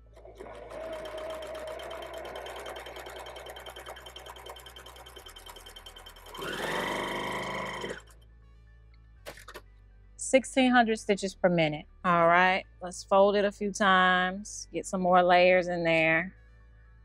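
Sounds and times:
sewing machine needle clattering: 0.0 - 8.2.

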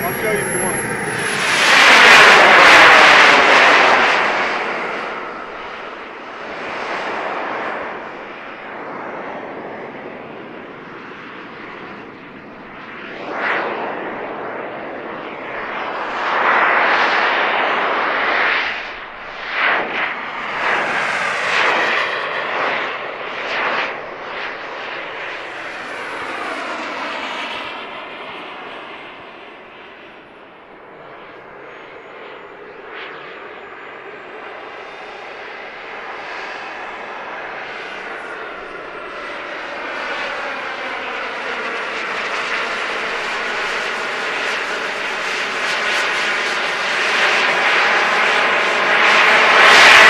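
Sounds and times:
model jet turbine flying overhead: 0.0 - 50.0.

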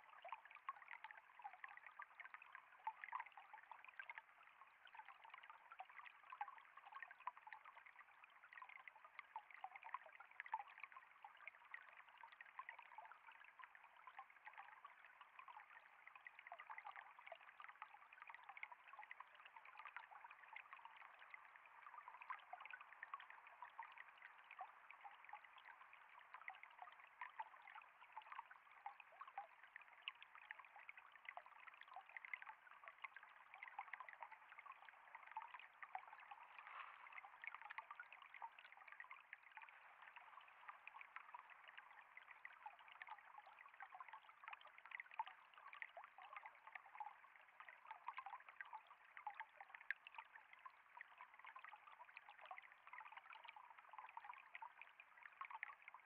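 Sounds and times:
stream babbling over rocks: 32.5 - 49.2.

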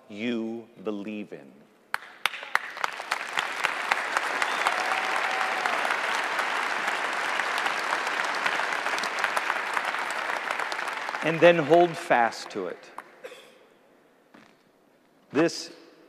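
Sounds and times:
large audience applauding: 1.9 - 13.2.

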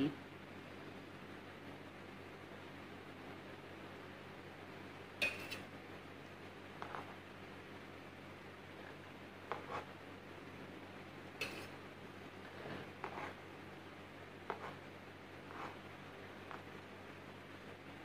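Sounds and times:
knife scraping cream on cake: 6.8 - 7.2, 8.8 - 9.9, 12.4 - 13.4, 14.4 - 14.8, 15.4 - 15.8, 16.4 - 16.7.

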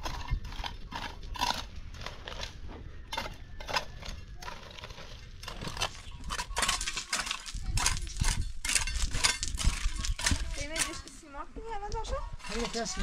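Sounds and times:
trowel scraping and tapping on stone: 3.1 - 11.2.

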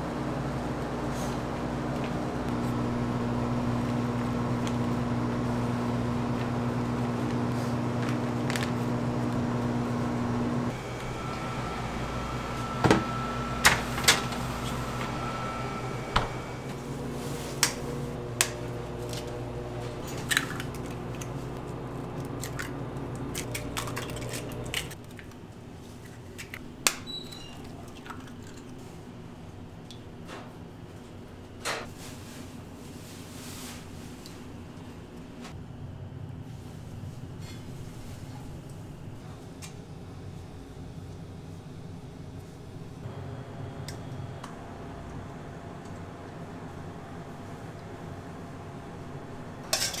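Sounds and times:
electric machinery hum: 0.0 - 25.0, 34.5 - 50.0
utensils and pans clinking: 49.7 - 50.0.

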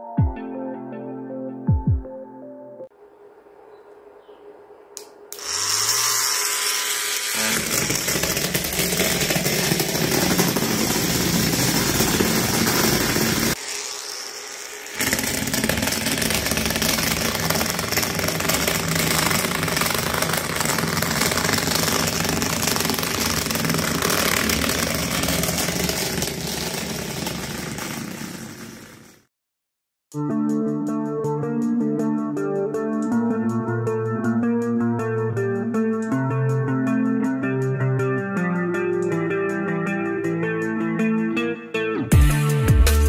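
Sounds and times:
small electric motor running: 5.4 - 29.2.

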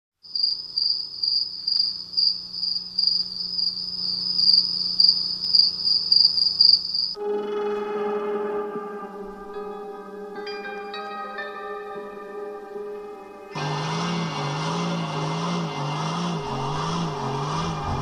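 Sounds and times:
bell-like synth chords: 7.2 - 18.0.

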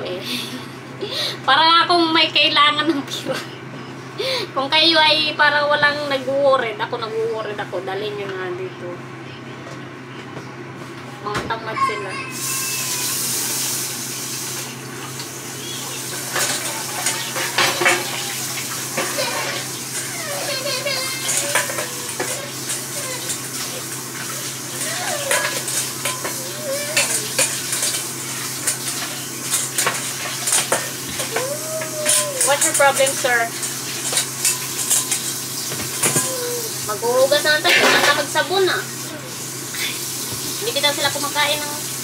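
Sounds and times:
tap running: 12.8 - 36.5
dishes and cutlery clattering: 16.1 - 36.4, 37.6 - 38.3.

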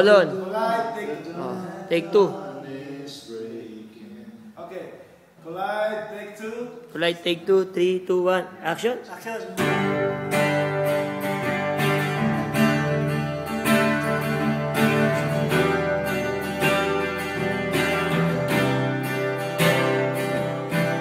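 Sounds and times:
acoustic guitar strumming: 9.6 - 21.0.

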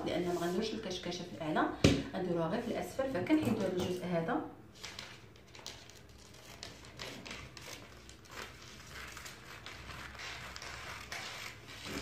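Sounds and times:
paper rustling: 4.8 - 12.0
scissors cutting paper: 5.6 - 12.0.

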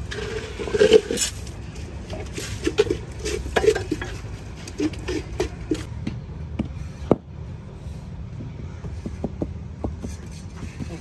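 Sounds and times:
metal scoop scraping wet cement: 0.0 - 5.9.

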